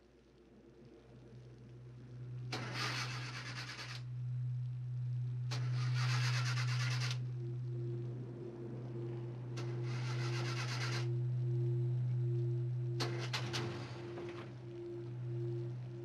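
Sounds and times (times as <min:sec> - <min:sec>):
steady low hum: 0:00.0 - 0:16.0
car engine cranking: 0:02.5 - 0:04.0, 0:05.5 - 0:07.2, 0:09.6 - 0:11.1.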